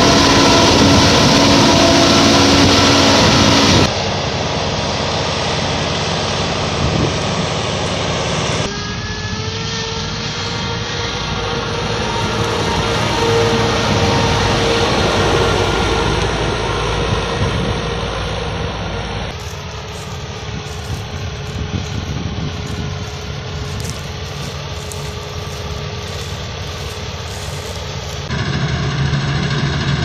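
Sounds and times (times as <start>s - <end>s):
combine harvester diesel engine: 0.0s - 30.0s
steady whine: 0.0s - 30.0s
distant engines idling: 7.6s - 28.3s.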